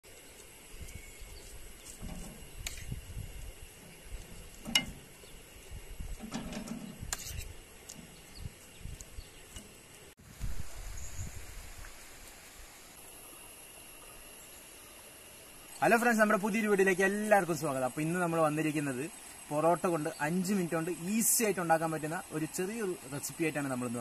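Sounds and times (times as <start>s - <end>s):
wind rumble on microphone: 0.7s - 9.5s, 10.2s - 12.0s.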